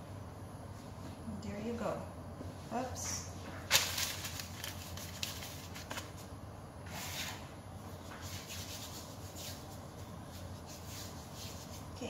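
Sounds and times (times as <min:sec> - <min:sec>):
low steady hum: 0:00.0 - 0:12.0
hands rubbing together: 0:08.2 - 0:12.0.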